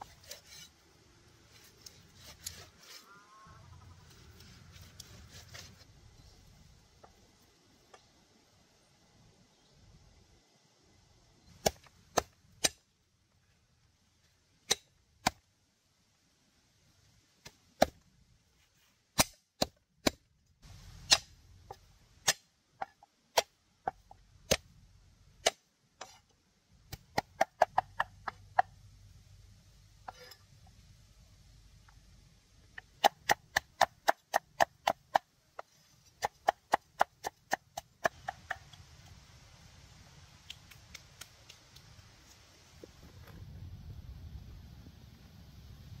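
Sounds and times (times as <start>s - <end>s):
blade chopping wood: 11.6s - 12.8s, 19.2s - 20.3s, 21.0s - 23.6s.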